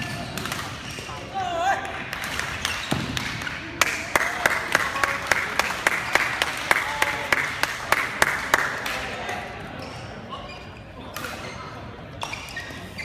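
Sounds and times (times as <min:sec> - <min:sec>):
crowd voices: 0:00.0 - 0:13.0
rhythmic crowd clapping: 0:02.1 - 0:09.2.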